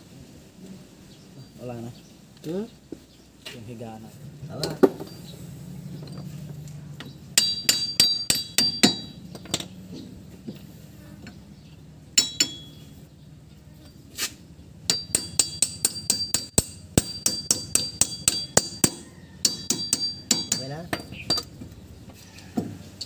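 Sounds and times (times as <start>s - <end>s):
hammer striking steel: 7.4s - 9.7s, 12.2s - 12.9s, 14.9s - 21.5s.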